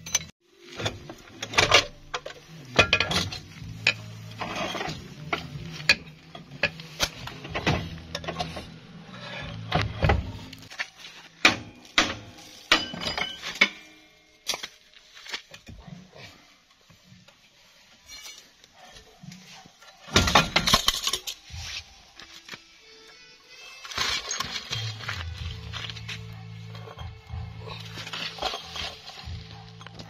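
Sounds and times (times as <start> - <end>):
metallic clinks and knocks: 11.5 - 14.7, 24.0 - 30.0.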